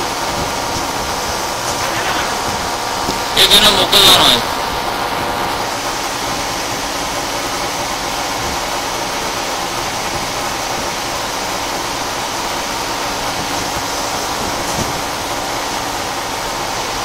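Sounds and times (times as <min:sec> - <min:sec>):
machining centre hissing: 0:01.4 - 0:04.6.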